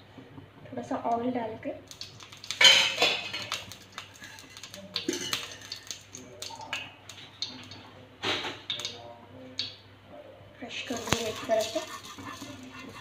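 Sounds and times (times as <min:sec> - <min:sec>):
person speaking: 0:10.6 - 0:13.0.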